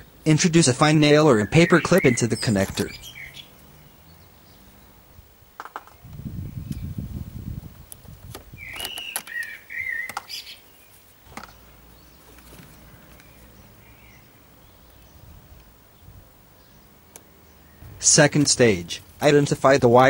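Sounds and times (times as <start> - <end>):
bird chirping: 0.0 - 7.1, 8.5 - 20.0
low rumble: 17.7 - 18.3.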